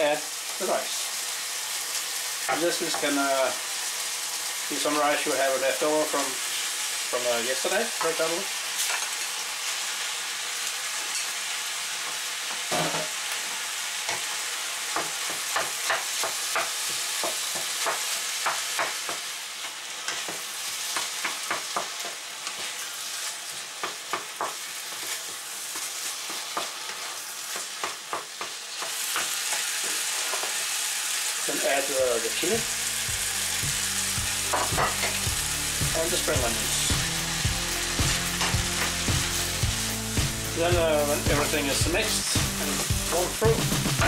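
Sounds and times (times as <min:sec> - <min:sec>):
food sizzling in a frying pan: 0:00.0 - 0:44.0
spatula tapping a pan: 0:14.9 - 0:19.2, 0:20.1 - 0:22.2.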